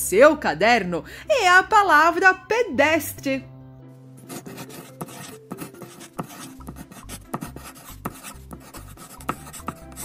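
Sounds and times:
soft background music: 0:00.0 - 0:10.0
pencil scratching on paper: 0:04.2 - 0:10.0.

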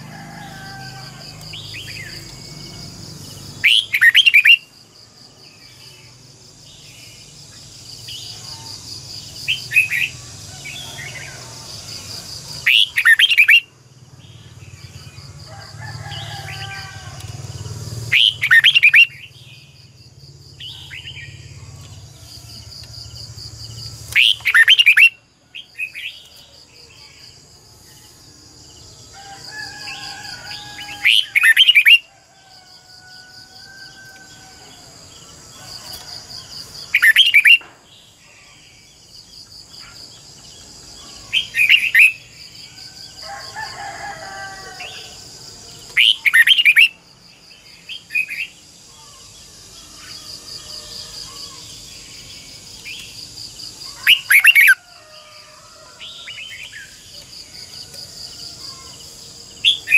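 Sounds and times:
bird song phrases: 0:24.2 - 0:27.3, 0:45.9 - 0:47.0.

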